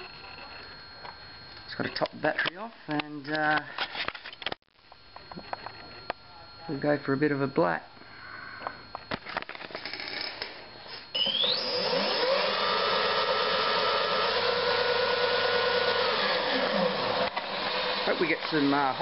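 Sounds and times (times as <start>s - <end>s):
electric motor whine: 5.2s - 19.0s.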